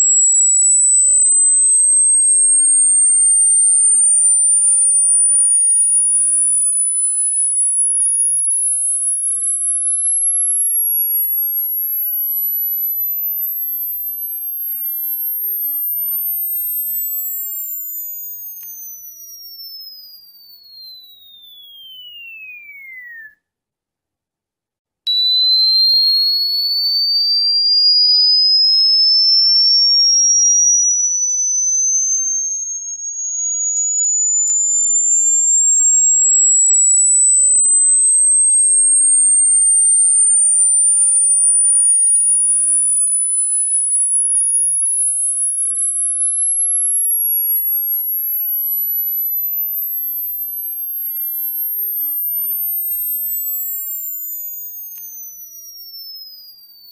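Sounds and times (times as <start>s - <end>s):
falling sine tone: 0.0s - 23.4s, 25.1s - 56.9s
high tone gliding upward: 25.1s - 42.2s
faint falling tone: 27.8s - 36.4s.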